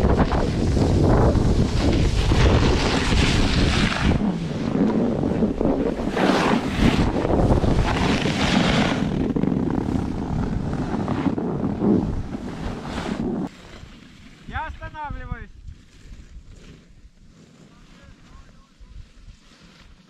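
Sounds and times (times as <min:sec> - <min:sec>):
snowboard swishing on snow: 0:00.0 - 0:09.3, 0:10.0 - 0:14.6, 0:15.6 - 0:20.0
wind buffeting microphone: 0:00.0 - 0:13.5.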